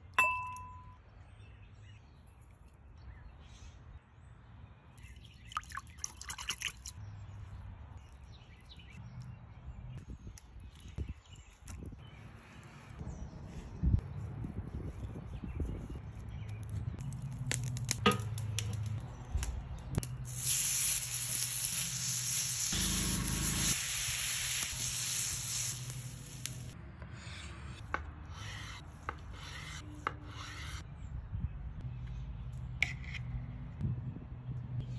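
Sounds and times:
fish sizzling on griddle: 20.3s - 26.8s
short hissing bursts: 20.3s - 26.8s.

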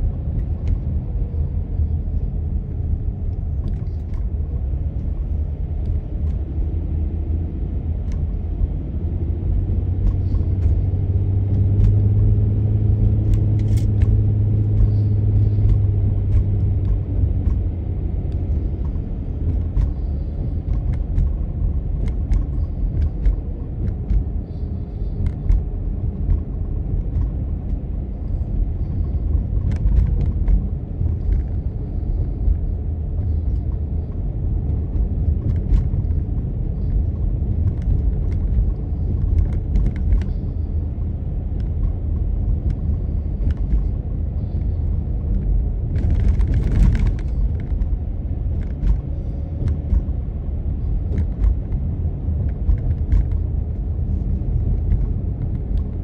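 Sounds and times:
car engine rumble: 0.0s - 56.0s
road noise: 0.0s - 56.0s
small clicks and knocks: 13.0s - 17.7s, 45.3s - 50.3s.

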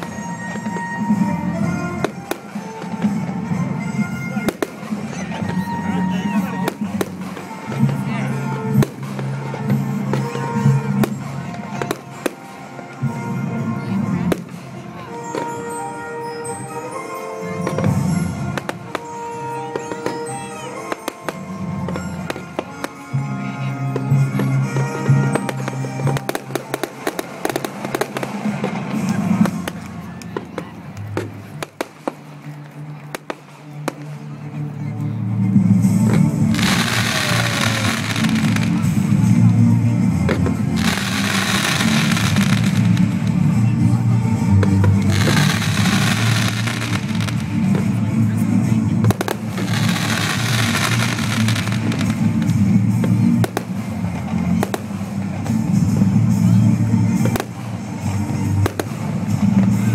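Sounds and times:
fireworks crackling pops: 0.0s - 13.2s, 24.0s - 34.4s, 35.9s - 39.6s, 40.2s - 43.8s, 44.5s - 48.3s, 48.9s - 56.4s, 57.1s - 59.9s
music playing: 0.0s - 59.9s.

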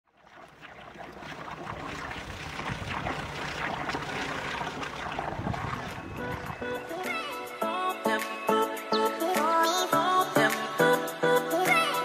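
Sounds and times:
water splashing: 0.0s - 7.5s
motorboat running: 0.1s - 7.1s.

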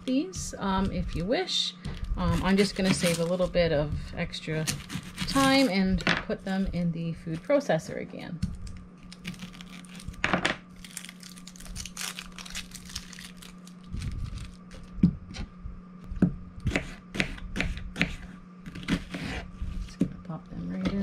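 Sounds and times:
knife peeling onion skin: 4.6s - 5.8s, 10.8s - 14.9s.

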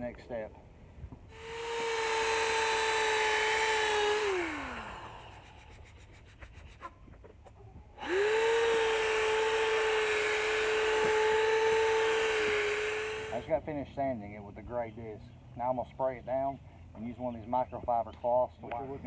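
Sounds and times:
electric drill sanding plastic: 1.3s - 6.0s, 8.0s - 13.5s.

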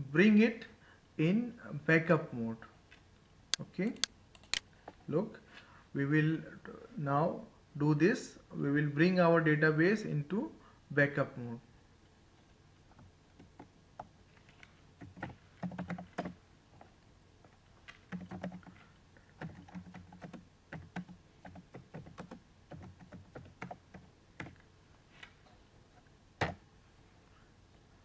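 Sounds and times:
typing on computer keyboard: 15.0s - 16.4s, 17.9s - 18.8s, 19.4s - 24.6s.

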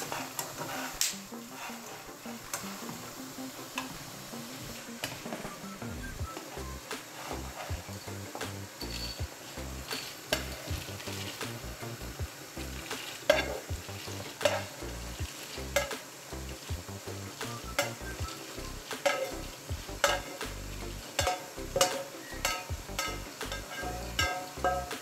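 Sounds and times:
spatula scraping frying pan: 0.0s - 4.0s, 6.3s - 8.2s, 8.8s - 11.7s, 12.6s - 16.3s, 17.6s - 25.0s
seeds rattling into pot: 7.8s - 11.9s.

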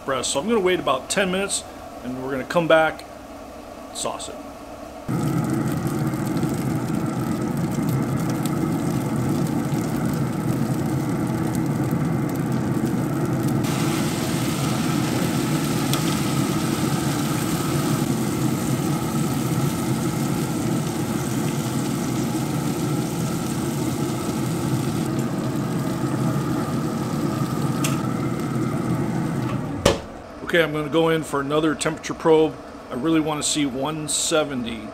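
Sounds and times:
mechanical running noise: 5.1s - 30.4s
higher hiss: 13.6s - 18.1s.

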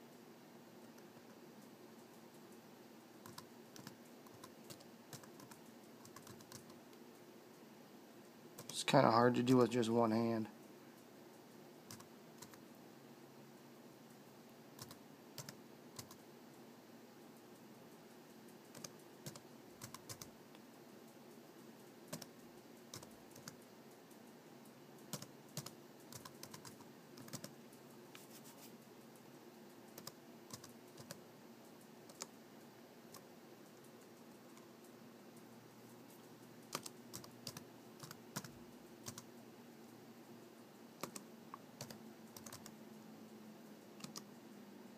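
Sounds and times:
faint low hum: 0.0s - 44.9s
keyboard keys tapping: 3.2s - 6.8s, 18.6s - 20.3s, 22.9s - 23.6s, 25.1s - 27.6s, 36.7s - 39.3s, 41.0s - 42.7s.

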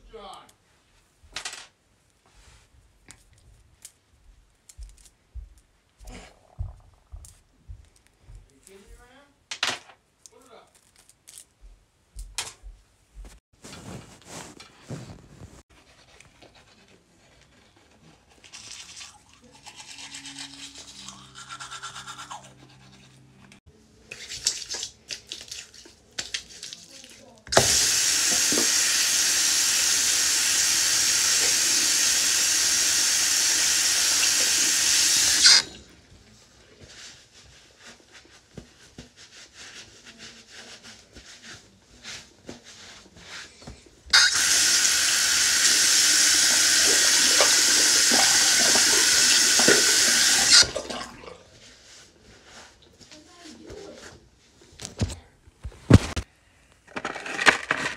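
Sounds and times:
hands rubbing with towel: 13.1s - 15.8s
sink tap running: 27.5s - 35.8s, 44.2s - 50.9s.

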